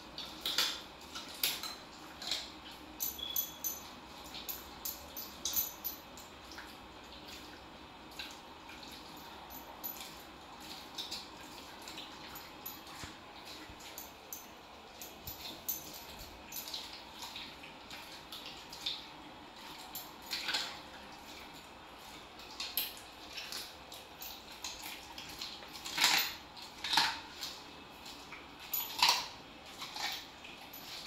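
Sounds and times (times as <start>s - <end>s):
dog nails clicking on tile: 0.2s - 6.3s, 22.4s - 31.0s
dog licking the floor: 6.4s - 31.0s.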